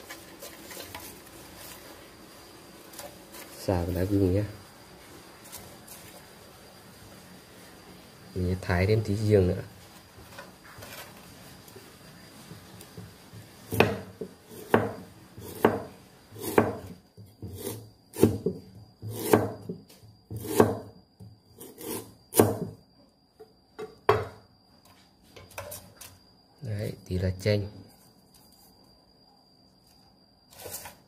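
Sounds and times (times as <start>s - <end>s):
cleaver chopping on wooden block: 13.7s - 16.9s, 17.5s - 19.7s, 20.4s - 20.9s, 21.8s - 22.7s.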